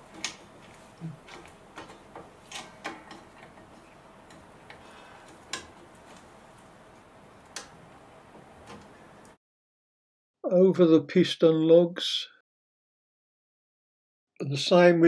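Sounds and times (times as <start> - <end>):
metallic clicks and taps: 1.3 - 5.9.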